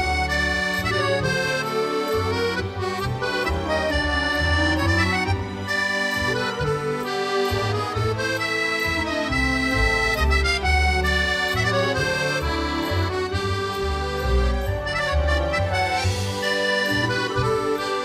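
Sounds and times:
accordion-like melody: 0:00.0 - 0:18.0
bass line: 0:00.0 - 0:18.0.

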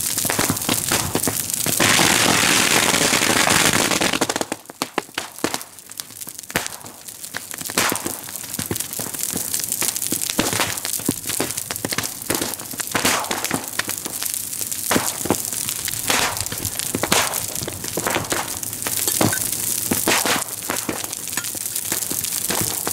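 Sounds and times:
fire rushing hiss: 0:00.0 - 0:04.3
bonfire crackling: 0:00.0 - 0:22.9
burning wood popping and cracking: 0:00.0 - 0:22.9.

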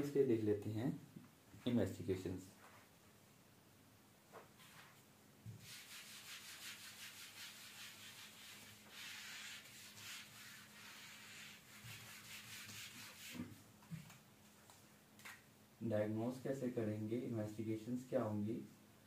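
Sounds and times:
eraser swishing on whiteboard: 0:04.4 - 0:14.2.

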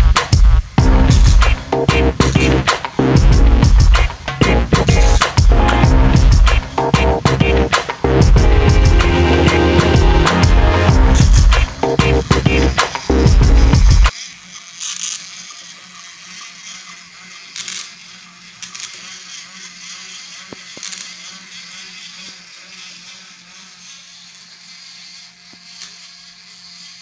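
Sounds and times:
small electric motor whirring: 0:00.0 - 0:27.0
toy train wheels rattling on track: 0:11.2 - 0:27.0.

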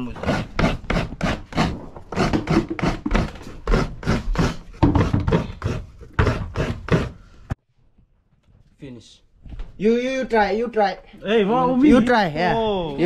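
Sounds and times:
coconut being grated: 0:00.0 - 0:07.2.

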